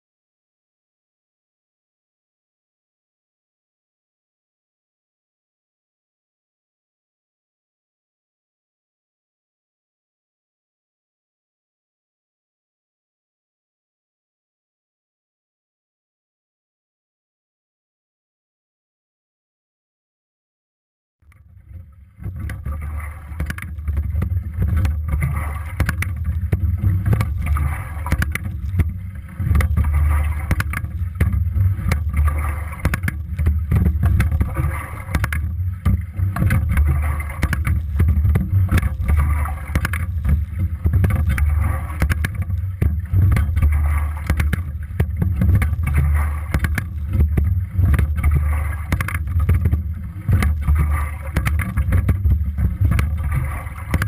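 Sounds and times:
low rumble of water and wind: 21.2s - 54.0s
oars and rigging clicking: 21.3s - 54.0s.

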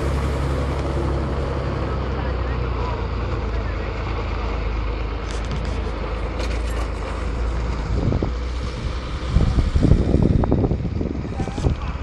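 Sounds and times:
truck engine rumbling: 0.0s - 12.0s
wind buffeting microphone: 7.6s - 12.0s.

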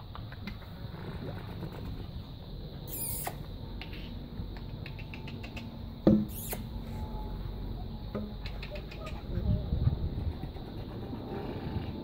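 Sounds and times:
puppies squeaking and yipping: 6.3s - 6.7s.

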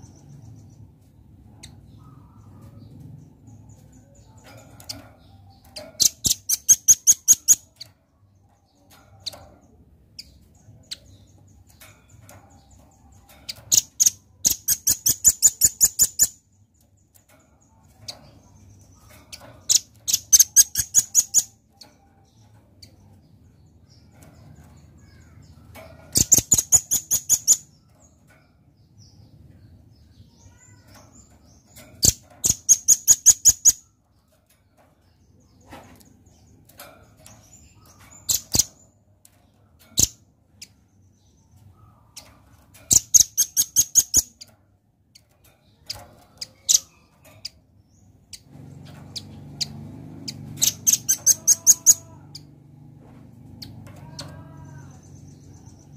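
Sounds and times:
bird chipping calls: 4.4s - 7.9s, 12.6s - 16.5s, 18.6s - 21.7s, 25.0s - 27.8s, 30.3s - 34.0s, 36.3s - 39.0s, 39.9s - 44.5s, 45.2s - 52.6s.

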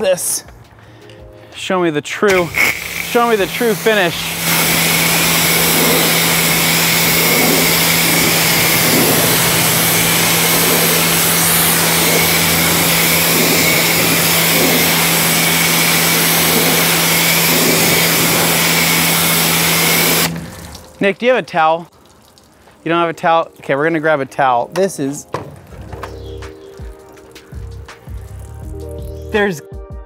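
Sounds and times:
pressure washer motor humming: 2.3s - 21.0s
water spray hissing: 2.3s - 21.1s, 26.4s - 29.2s.

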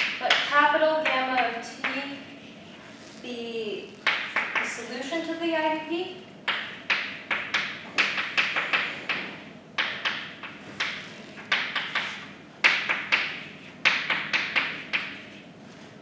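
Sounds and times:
chalk tapping and scraping: 6.5s - 16.0s.

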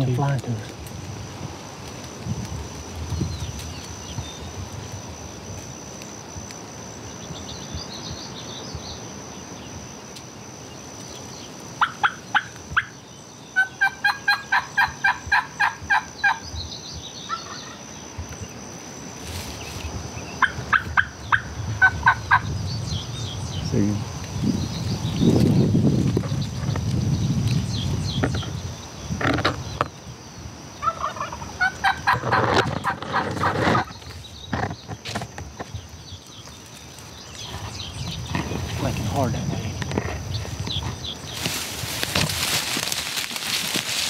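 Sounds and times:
turkey yelping: 13.6s - 16.4s, 30.8s - 32.3s.

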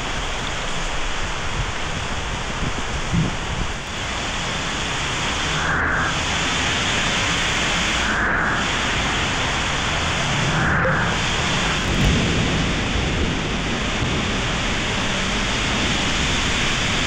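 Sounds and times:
heavy rain hitting road: 0.0s - 17.0s
car tyres swishing through water: 8.6s - 17.0s.

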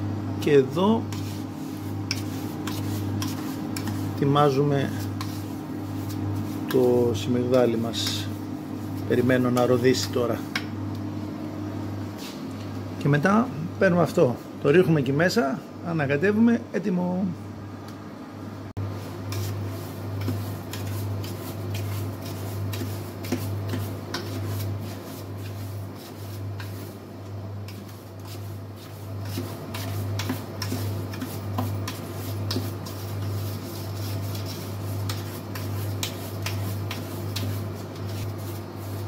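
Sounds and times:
induction hob humming: 0.0s - 39.0s
spoon scraping dry semolina: 1.0s - 10.3s, 19.3s - 27.0s, 27.6s - 39.0s.

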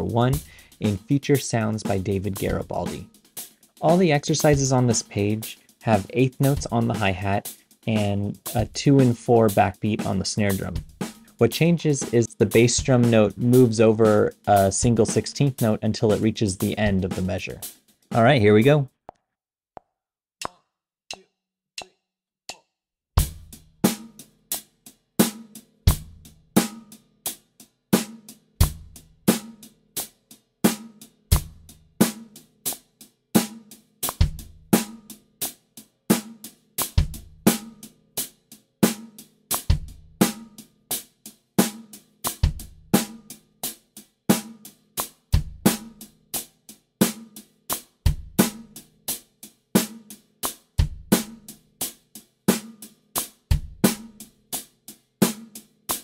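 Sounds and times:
hi-hat eighth notes: 0.0s - 17.2s
snare drum backbeat: 0.0s - 18.8s, 23.2s - 24.2s, 28.0s - 29.6s, 30.7s - 32.8s, 33.4s - 35.1s, 36.1s - 37.9s, 38.8s - 40.6s, 41.6s - 43.3s, 44.3s - 46.2s, 47.0s - 48.9s, 49.8s - 51.5s, 52.5s - 54.3s.

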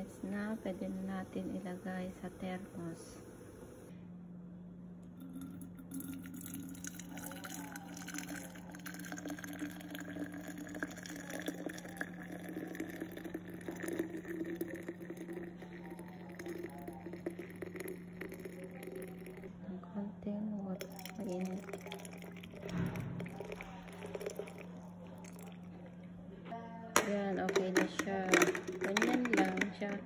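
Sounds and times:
steady low hum: 0.0s - 30.0s
coffee pouring into a flask: 5.0s - 19.5s, 20.8s - 25.7s, 27.5s - 30.0s.

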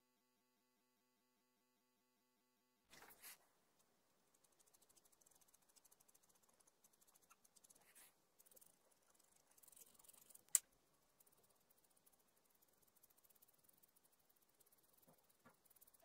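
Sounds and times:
chalk pencil scratching on paper: 3.0s - 3.4s, 4.2s - 16.0s.

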